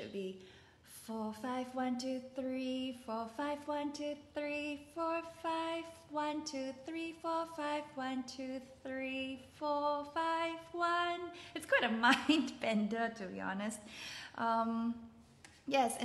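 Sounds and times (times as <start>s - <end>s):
woman singing vocal exercise: 0.0s - 11.8s.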